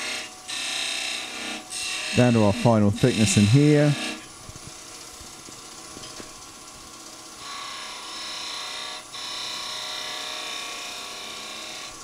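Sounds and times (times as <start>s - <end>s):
turning tool cutting wood hiss: 0.0s - 4.3s
wood lathe running: 0.0s - 4.3s, 7.4s - 12.0s.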